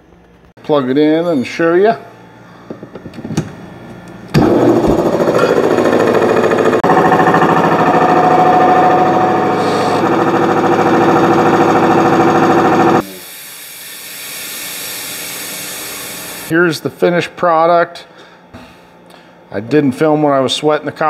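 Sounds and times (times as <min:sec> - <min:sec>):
air compressor running: 0:01.1 - 0:16.5.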